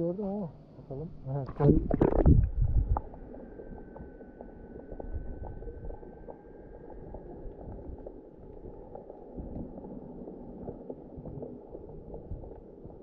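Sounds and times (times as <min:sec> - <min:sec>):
underwater rumble of sea: 0:00.8 - 0:13.0
small clicks and ticks: 0:03.0 - 0:13.0.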